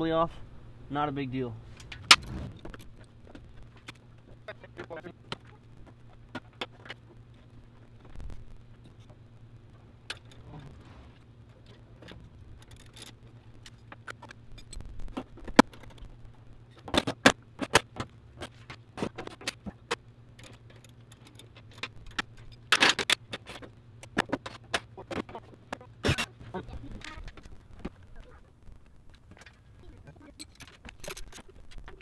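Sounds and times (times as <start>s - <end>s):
tools and parts clattering: 10.0s - 10.8s, 11.5s - 16.1s, 16.7s - 26.4s, 29.2s - 32.0s.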